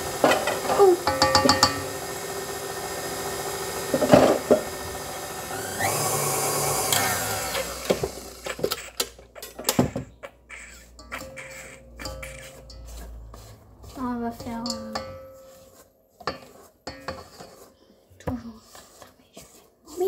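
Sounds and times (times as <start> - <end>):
electric kitchen mixer running: 0.0 - 8.9.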